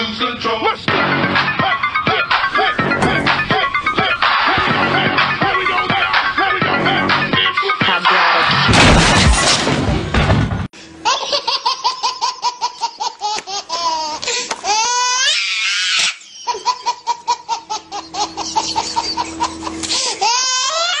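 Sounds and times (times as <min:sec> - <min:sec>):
baby laughing and squealing: 0:11.0 - 0:21.0.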